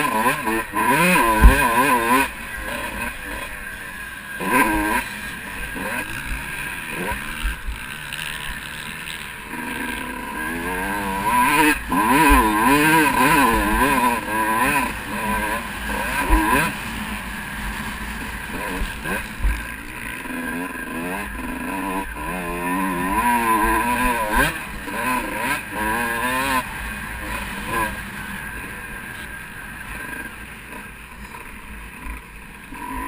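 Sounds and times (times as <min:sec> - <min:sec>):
motocross bike engine revving: 0:00.0 - 0:33.0
low thumps from bumps: 0:01.3 - 0:01.7.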